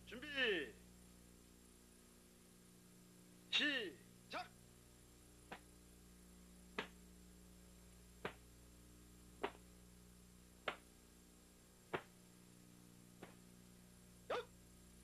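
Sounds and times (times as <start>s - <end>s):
faint steady hum: 0.0s - 15.0s
short sharp snaps: 5.5s - 5.7s, 6.7s - 7.0s, 8.2s - 8.5s, 9.4s - 9.7s, 10.6s - 10.9s, 11.9s - 12.1s, 13.2s - 13.4s.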